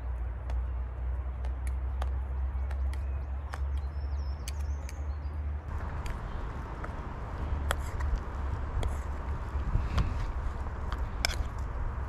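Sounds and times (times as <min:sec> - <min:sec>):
steady low rumble: 0:00.0 - 0:12.0
bird chirping: 0:01.8 - 0:09.2.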